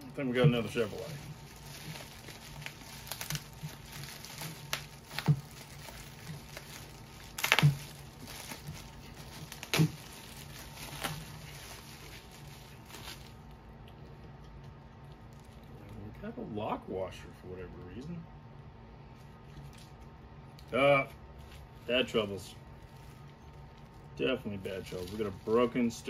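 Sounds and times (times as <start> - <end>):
plastic bag crinkling: 0.0 - 13.6, 15.0 - 16.1, 20.6 - 26.0.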